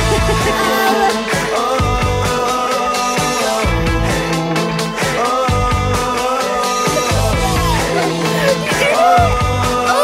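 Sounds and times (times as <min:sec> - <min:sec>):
background music with a beat: 0:00.0 - 0:10.0.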